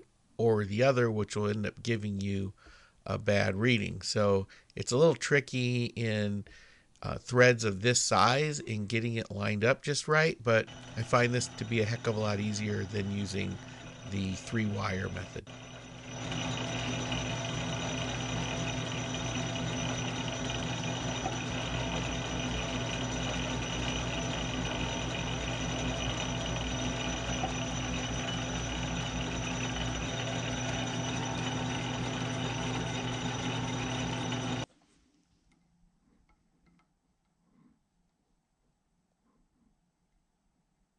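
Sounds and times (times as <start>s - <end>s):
metal lathe humming: 10.6s - 34.7s.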